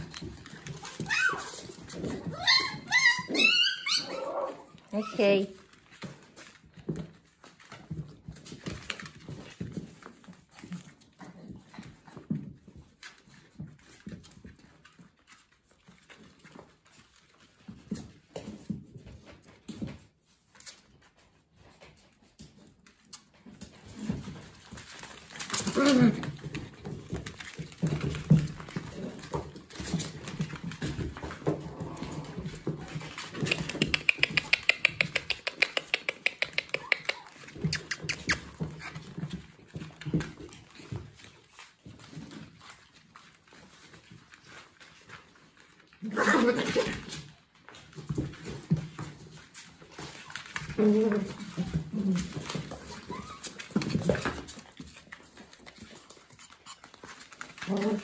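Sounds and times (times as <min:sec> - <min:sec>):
claws clicking on hard floor: 0:00.0 - 0:58.0
dogs growling and grunting: 0:03.3 - 0:05.0, 0:25.6 - 0:26.6, 0:31.3 - 0:37.3, 0:46.0 - 0:47.2, 0:50.7 - 0:53.4, 0:57.5 - 0:58.0
dogs making short noises: 0:33.3 - 0:38.6.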